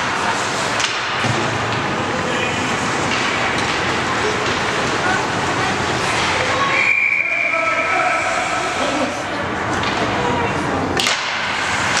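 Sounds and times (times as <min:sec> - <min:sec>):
stick or puck knocks: 0:11.0 - 0:12.0.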